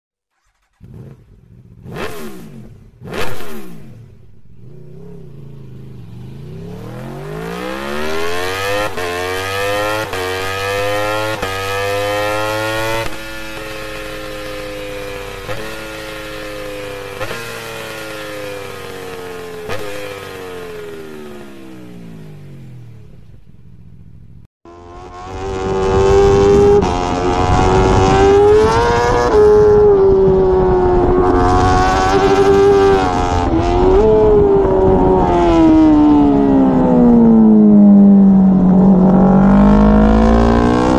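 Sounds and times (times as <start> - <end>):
exhaust cracks: 0.3 - 4.3
motorcycle engine revving: 0.3 - 40.9.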